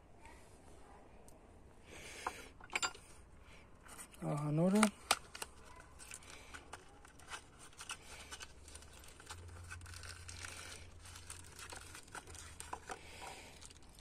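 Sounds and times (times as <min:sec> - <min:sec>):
packaging crinkling and tearing: 0:03.9 - 0:14.0.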